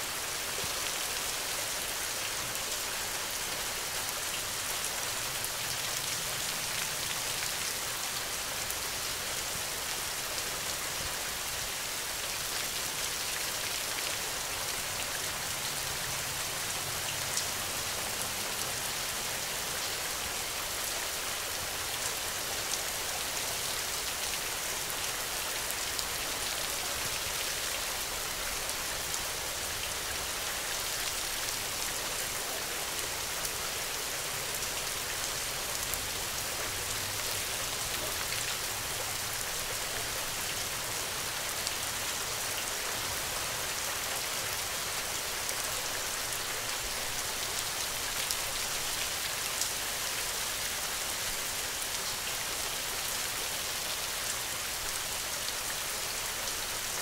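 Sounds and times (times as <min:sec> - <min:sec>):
steady rain: 0:00.0 - 0:57.0.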